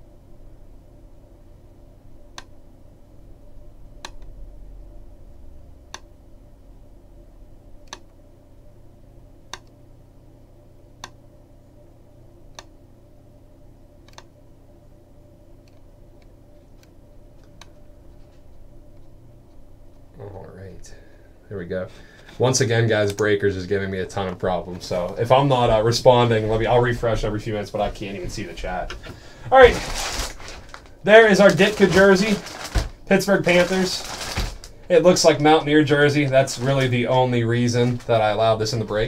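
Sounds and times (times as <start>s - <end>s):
steady low hum: 0.0s - 39.0s
computer mouse clicks: 4.0s - 4.3s, 7.8s - 8.1s, 9.5s - 9.8s, 11.0s - 11.2s, 12.5s - 12.7s, 14.0s - 14.3s, 15.6s - 17.8s.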